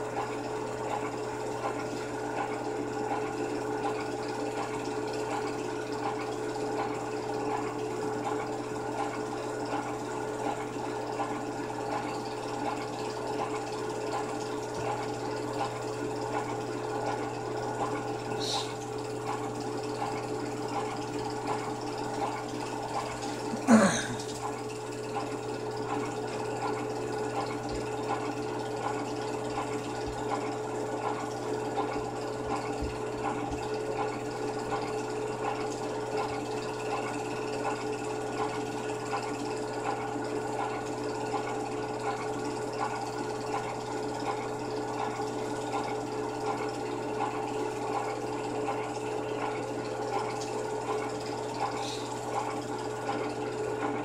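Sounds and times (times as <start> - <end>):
film projector whirring: 0.0 - 54.0.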